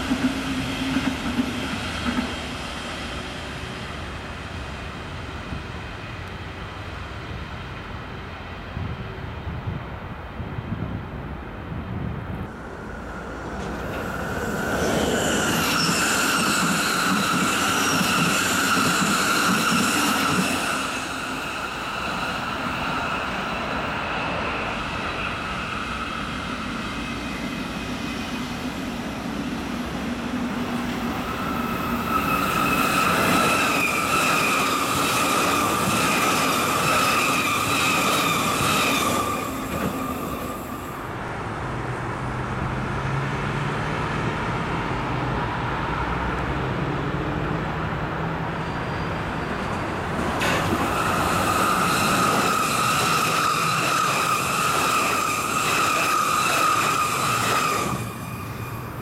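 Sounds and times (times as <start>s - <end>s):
electric trains passing: 0.0s - 59.0s
high-pitched squeal: 12.7s - 41.1s, 50.4s - 59.0s.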